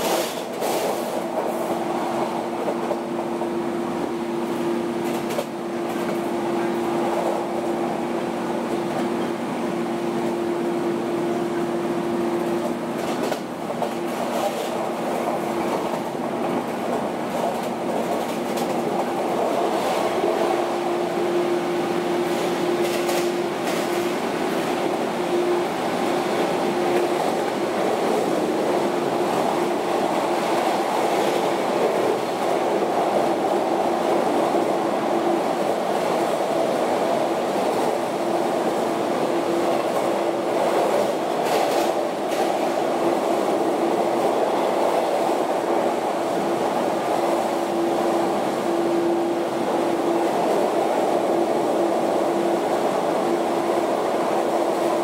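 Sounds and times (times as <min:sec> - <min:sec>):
wheels rumbling on rail: 0:00.0 - 0:55.0
rail-joint clicks: 0:05.0 - 0:06.3, 0:12.5 - 0:20.6, 0:22.3 - 0:25.0.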